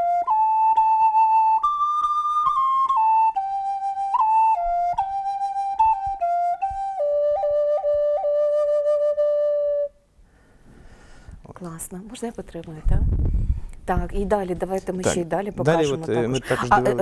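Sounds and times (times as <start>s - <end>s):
wooden flute melody: 0.0s - 10.1s.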